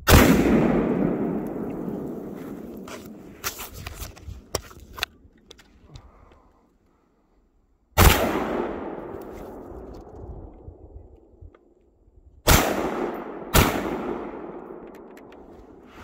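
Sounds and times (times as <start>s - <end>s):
explosive target blasts: 0.0s - 3.2s.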